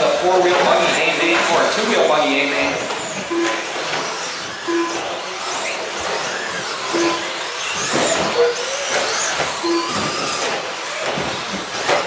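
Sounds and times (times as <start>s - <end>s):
short beeps: 3.3s - 3.7s, 4.7s - 5.1s, 6.9s - 7.4s, 9.6s - 10.2s
electric motor whine: 3.8s - 11.7s.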